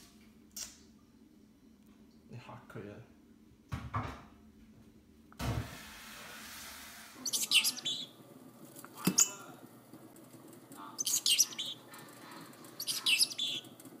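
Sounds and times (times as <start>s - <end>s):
parrotlet chirping: 7.2s - 8.2s, 9.0s - 9.5s, 10.9s - 13.8s.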